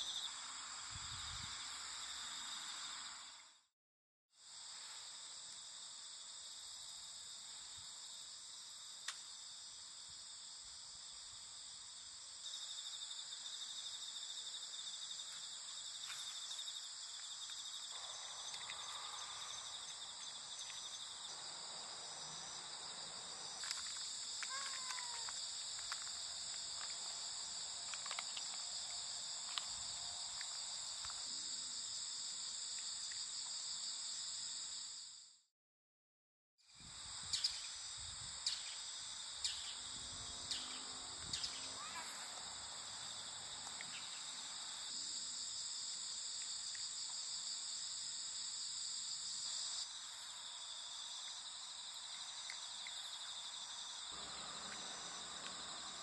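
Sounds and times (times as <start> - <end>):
insects trilling: 0.0 - 3.5, 4.4 - 35.2, 36.7 - 56.0
faint clicks: 23.6 - 27.1.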